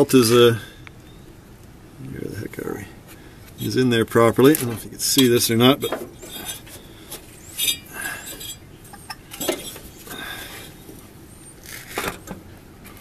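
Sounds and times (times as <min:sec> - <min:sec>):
light clinks and knocks: 0:04.6 - 0:09.9.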